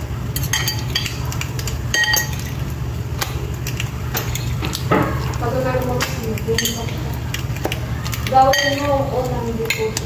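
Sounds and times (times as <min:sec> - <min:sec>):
fork clinking on ceramic plate: 0:00.4 - 0:02.6.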